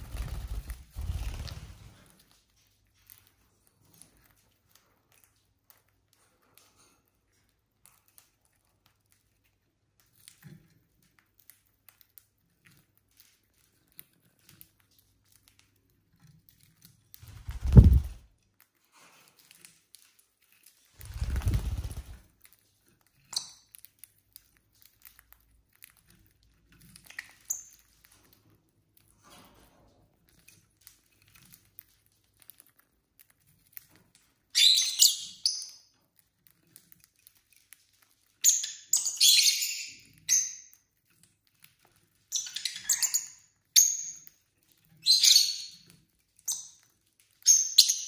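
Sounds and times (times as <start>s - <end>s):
birds cracking seeds: 19.2s - 28.4s.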